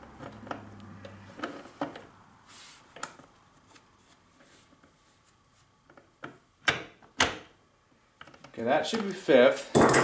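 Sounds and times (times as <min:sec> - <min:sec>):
faint scrape: 0:02.4 - 0:02.9.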